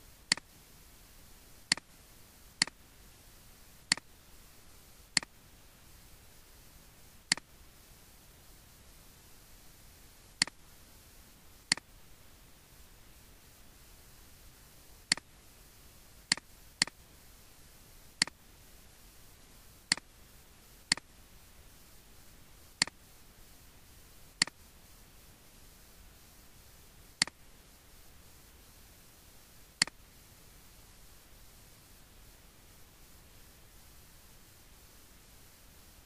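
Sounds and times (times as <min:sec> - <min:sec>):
faint steady hiss: 0:00.0 - 0:36.0
computer mouse clicking: 0:00.3 - 0:00.6, 0:01.7 - 0:02.0, 0:02.6 - 0:02.8, 0:03.9 - 0:04.1, 0:05.1 - 0:05.4, 0:07.3 - 0:07.5, 0:10.4 - 0:10.6, 0:11.7 - 0:11.9, 0:15.1 - 0:15.3, 0:16.3 - 0:17.0, 0:18.2 - 0:18.4, 0:19.9 - 0:20.1, 0:20.9 - 0:21.1, 0:22.7 - 0:23.0, 0:24.4 - 0:24.6, 0:27.2 - 0:27.4, 0:29.7 - 0:30.0.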